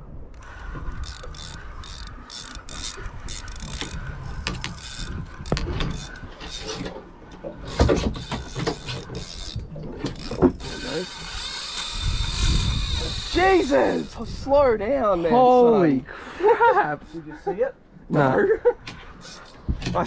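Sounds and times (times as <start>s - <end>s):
reel drag running: 0.2s - 15.2s, 16.6s - 17.4s, 19.0s - 20.0s
fishing reel ratchet clicking: 0.3s - 6.9s, 7.6s - 14.7s, 19.2s - 19.6s.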